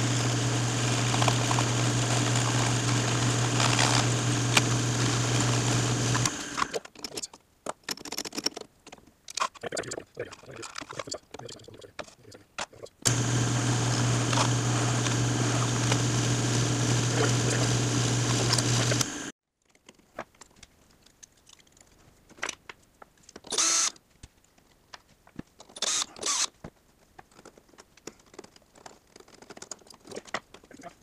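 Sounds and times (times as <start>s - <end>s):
drill press drilling plastic: 0.0s - 6.9s, 13.1s - 19.3s, 23.5s - 24.0s, 25.8s - 26.5s.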